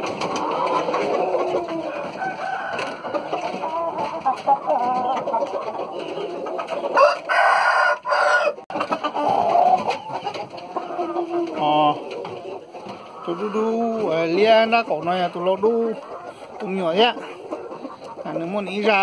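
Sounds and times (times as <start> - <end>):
chickens clucking: 0.0 - 19.0
rooster crowing: 1.9 - 3.3, 7.0 - 8.6.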